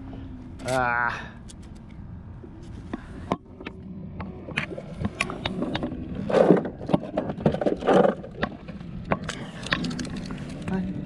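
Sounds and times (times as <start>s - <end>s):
fishing gear clicks and scrapes: 2.6s - 11.0s.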